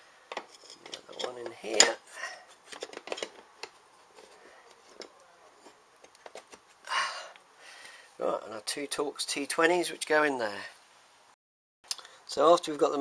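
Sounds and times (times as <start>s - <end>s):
metal and plastic parts clicking: 2.7s - 3.8s.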